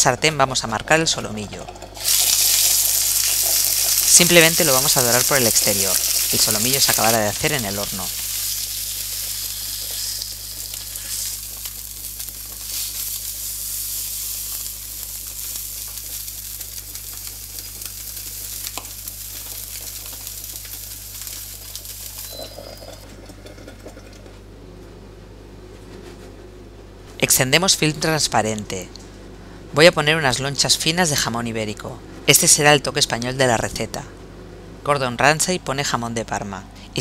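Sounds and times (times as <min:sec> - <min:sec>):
meat sizzling in frying pan: 0:02.0 - 0:23.0.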